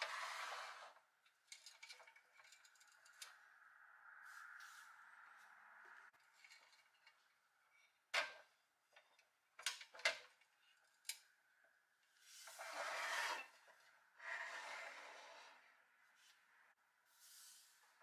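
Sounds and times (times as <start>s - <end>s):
toy truck scraping on tabletop: 0.0s - 1.1s, 12.2s - 15.8s.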